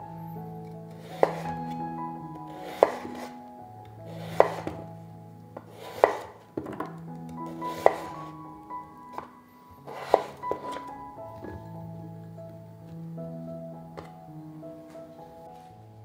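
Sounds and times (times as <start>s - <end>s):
knife chopping on wooden board: 1.1s - 1.5s, 2.6s - 3.3s, 4.2s - 4.8s, 5.6s - 6.9s, 7.7s - 8.2s, 9.9s - 10.9s.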